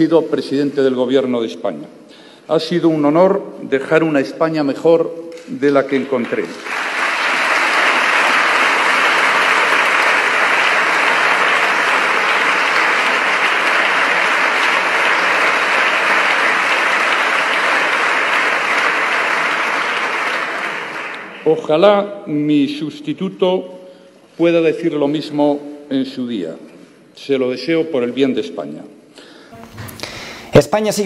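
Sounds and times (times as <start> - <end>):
sustained applause: 5.9 - 21.5.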